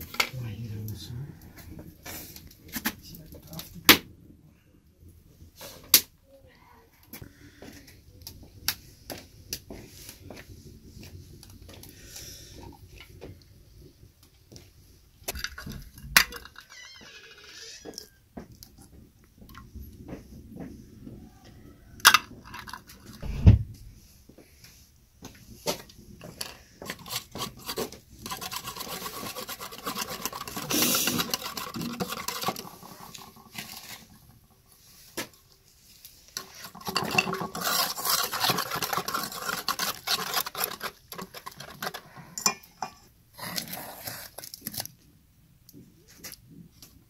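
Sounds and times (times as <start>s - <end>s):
wire whisk beating in metal bowl: 27.0s - 33.9s, 36.4s - 42.9s.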